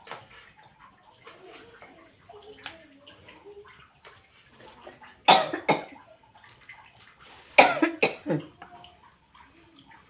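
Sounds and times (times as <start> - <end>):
person coughing: 5.3 - 6.0, 7.6 - 8.5.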